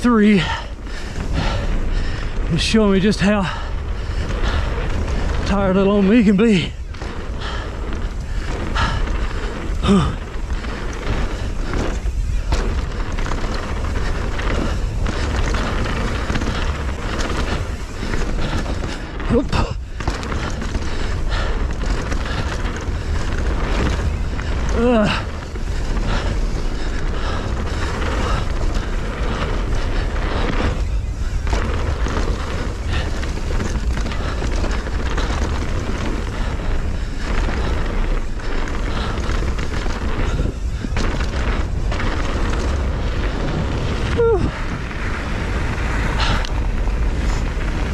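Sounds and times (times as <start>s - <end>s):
bike rattling over bumps: 0.0s - 47.9s
tyres rumbling over dirt: 0.0s - 47.9s
wind buffeting microphone: 0.0s - 47.9s.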